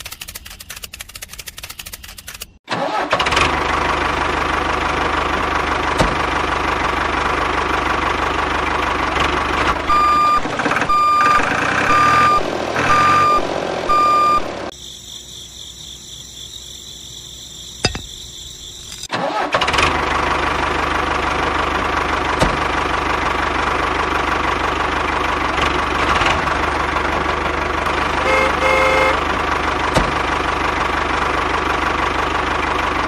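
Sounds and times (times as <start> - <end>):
diesel tractor engine idling: 2.7 - 14.7, 19.1 - 33.0
reversing beeps: 9.9 - 14.6.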